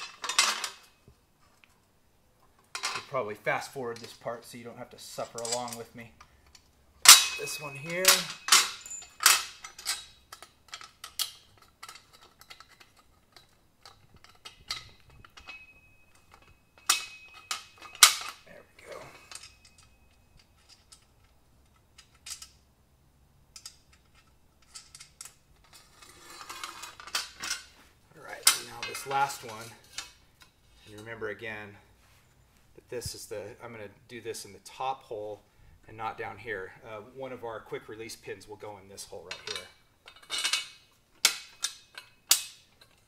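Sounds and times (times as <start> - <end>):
metal bolts clinking on steel tubing: 0.0 - 1.1, 2.6 - 22.7, 23.5 - 31.8, 38.0 - 43.0.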